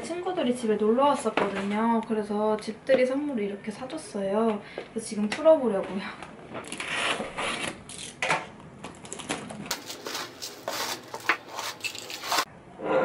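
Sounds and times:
box cutter scraping tape: 6.7s - 8.2s, 9.7s - 12.5s
cardboard and bubble-wrap rustling: 9.6s - 12.5s.

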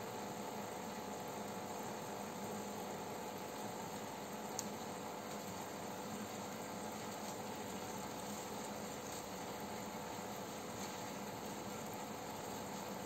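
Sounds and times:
aquarium pump hum: 0.0s - 13.0s.

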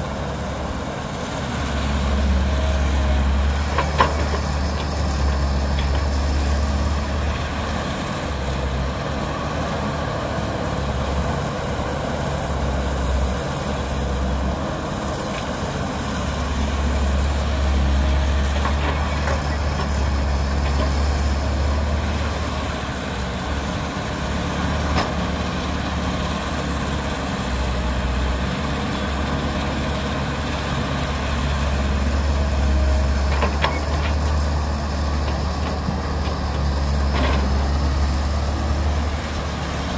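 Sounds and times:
diesel excavator engine rumbling: 0.0s - 39.9s.

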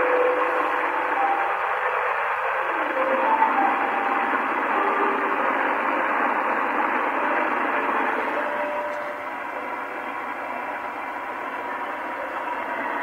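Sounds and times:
faint short musical tones: 0.0s - 5.4s, 7.2s - 9.3s
radio hiss and static: 0.0s - 13.0s.

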